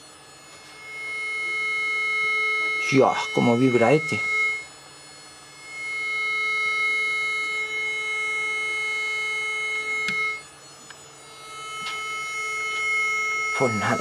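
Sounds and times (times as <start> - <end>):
coil buzzing steady tone: 0.0 - 14.0
click: 10.0 - 11.0.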